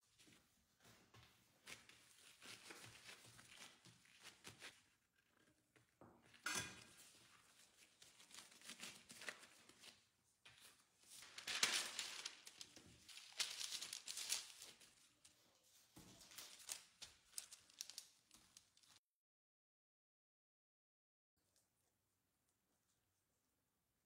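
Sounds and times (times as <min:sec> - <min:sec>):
baking paper crinkling: 0:01.6 - 0:19.0.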